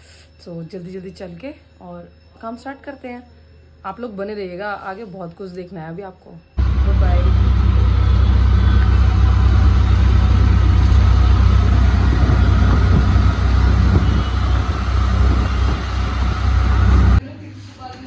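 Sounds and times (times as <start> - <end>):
auto-rickshaw engine running: 6.6 - 17.2
road and wind rush: 6.6 - 17.2.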